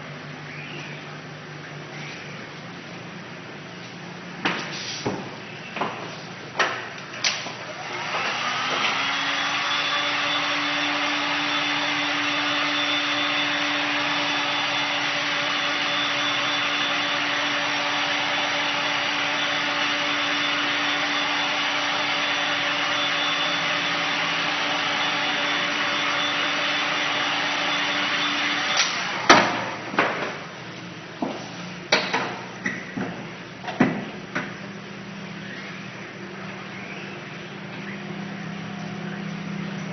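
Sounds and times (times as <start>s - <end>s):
heat gun fan whirring: 4.4s - 39.8s.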